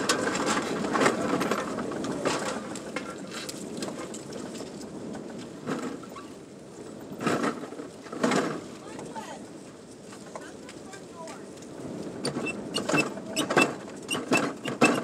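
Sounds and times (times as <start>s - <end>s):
rain on a car roof: 7.8s - 14.8s.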